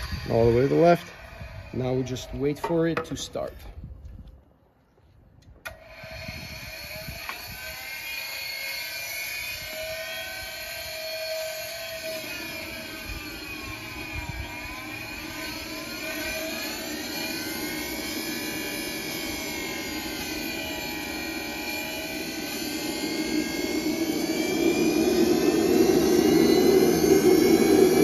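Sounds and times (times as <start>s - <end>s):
turbine whine: 0.0s - 4.2s, 5.5s - 28.0s
low rushing sound: 12.6s - 28.0s.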